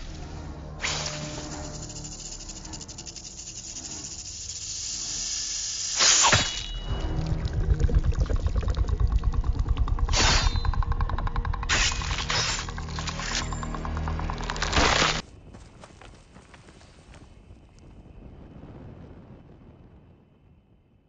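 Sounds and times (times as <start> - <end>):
rattlesnake rattle buzzing: 0.8 - 15.2
fast low pounding pulse: 6.8 - 15.2.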